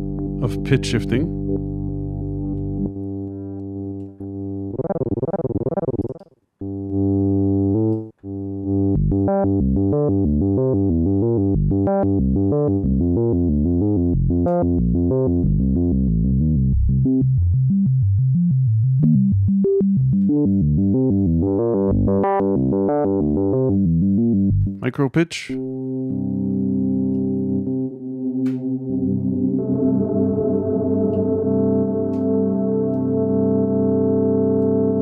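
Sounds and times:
synthesizer with pitch-shifted notes: 0.0 - 15.4, 25.6 - 35.0.

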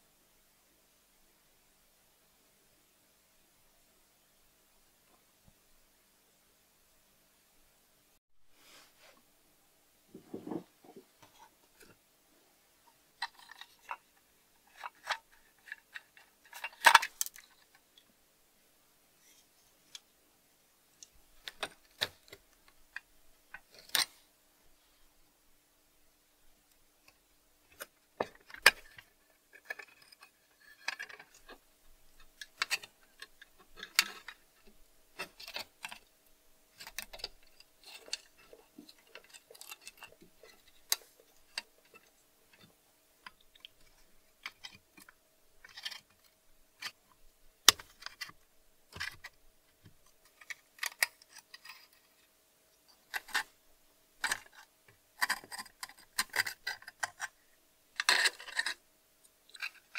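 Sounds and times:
faint steady hum: 0.0 - 59.9
small metal parts clicking and scraping: 13.2 - 18.0, 21.0 - 24.2, 27.0 - 53.5, 54.2 - 57.4, 58.0 - 59.9.

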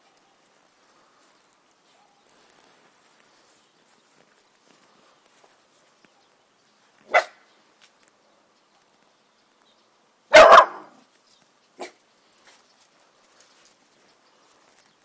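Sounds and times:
puppy barking: 1.9 - 2.2, 7.1 - 7.4, 10.3 - 11.0, 11.8 - 12.0.

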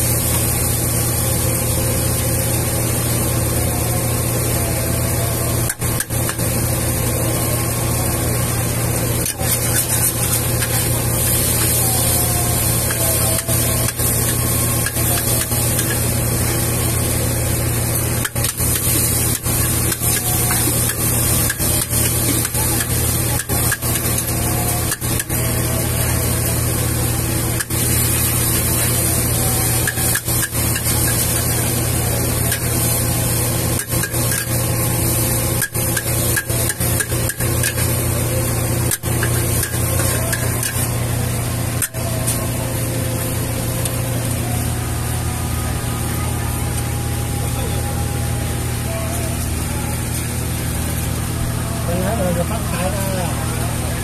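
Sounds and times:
loud low roar and hiss: 0.0 - 54.0
metal spatula scraping wok: 9.2 - 16.2, 27.6 - 31.8, 32.5 - 34.6, 38.8 - 40.9.

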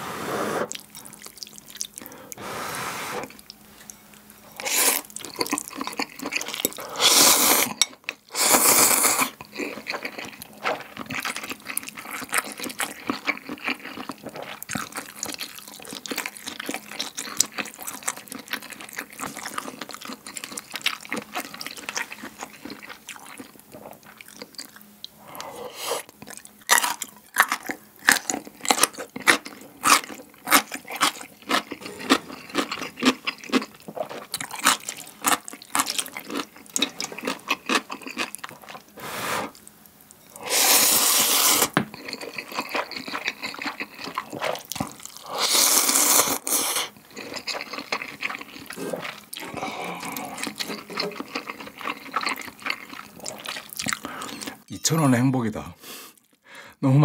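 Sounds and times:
wet chewing of noodles: 0.6 - 54.7
crisp crunches of chewing radish: 26.2 - 38.9, 41.3 - 54.6.

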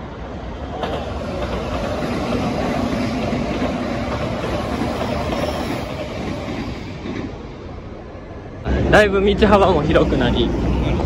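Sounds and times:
train rumbling past on track: 0.0 - 11.0.

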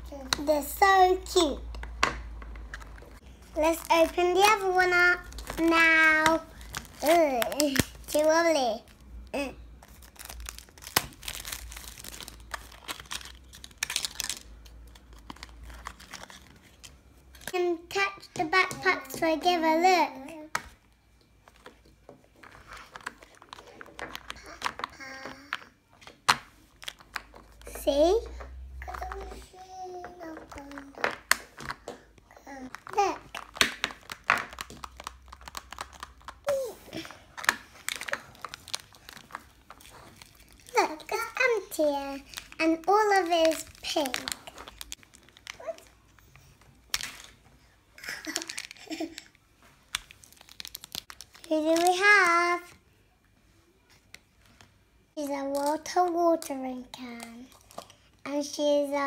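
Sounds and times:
plastic packaging crinkling and tearing: 2.6 - 17.7, 22.4 - 25.6, 26.6 - 28.0, 32.5 - 47.4, 48.0 - 52.7, 55.4 - 58.1.

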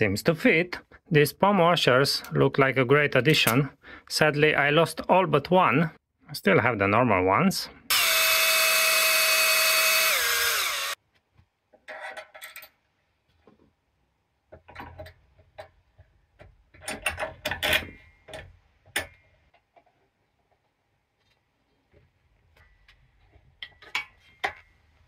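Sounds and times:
cordless drill motor whine: 7.9 - 11.0
knocks and clicks of metal parts: 14.5 - 19.8.

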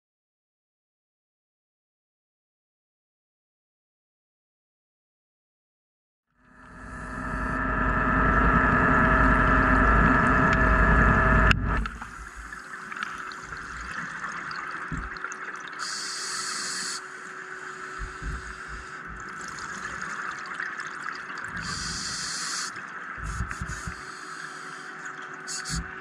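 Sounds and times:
faint steady tone: 6.4 - 20.4, 21.5 - 26.0
underwater mechanical hum: 6.4 - 26.0
low rumble: 6.6 - 12.6, 14.9 - 15.2, 18.0 - 19.4, 23.2 - 24.0
underwater water hiss: 12.0 - 15.1, 15.7 - 20.0, 21.5 - 26.0
burst of high hiss: 15.8 - 19.2, 21.6 - 26.0.

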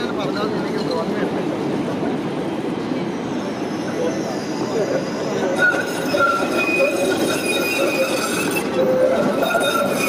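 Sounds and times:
tram rumbling: 0.0 - 10.0
tram wheels squealing: 2.9 - 10.0.

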